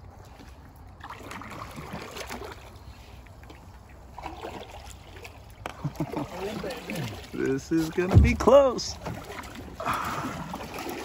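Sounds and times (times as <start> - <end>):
water trickling and lapping: 0.0 - 11.0
boat and paddle knocks: 5.6 - 11.0.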